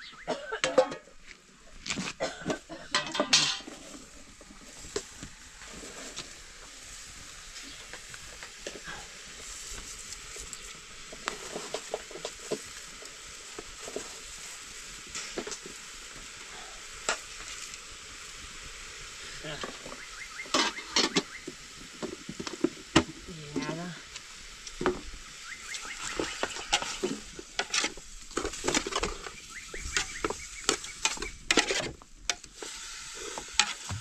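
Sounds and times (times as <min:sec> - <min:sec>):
food sizzling in a pan: 0:00.1 - 0:34.0
utensil clinking against pan: 0:02.9 - 0:03.7.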